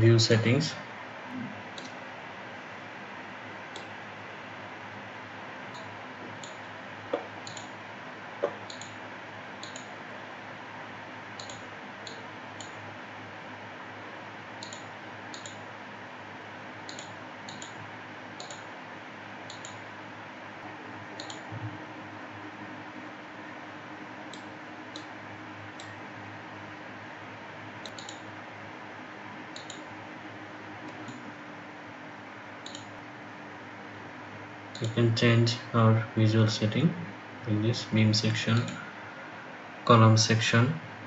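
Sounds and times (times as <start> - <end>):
computer mouse clicking: 1.8 - 2.0, 3.7 - 3.9, 5.7 - 7.8, 8.4 - 9.0, 9.6 - 9.9, 11.4 - 12.8, 14.6 - 15.6, 16.9 - 17.8, 18.4 - 18.7, 19.5 - 19.8, 21.2 - 21.4, 24.3 - 25.1, 25.8 - 26.0, 27.8 - 28.3, 29.6 - 29.9, 30.8 - 31.2, 32.6 - 32.9, 34.7 - 35.0
background hiss: 34.7 - 40.9.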